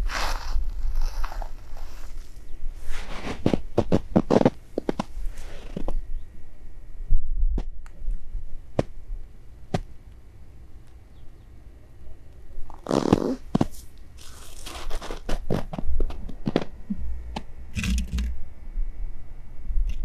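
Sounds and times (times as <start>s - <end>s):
snow crunching underfoot: 0.0s - 5.8s, 12.8s - 15.8s.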